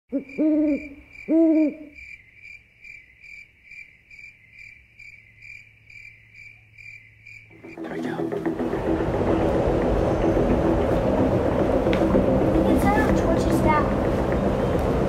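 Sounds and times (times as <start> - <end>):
owl hooting: 0.1 - 2.2
cricket chirping: 0.1 - 7.9.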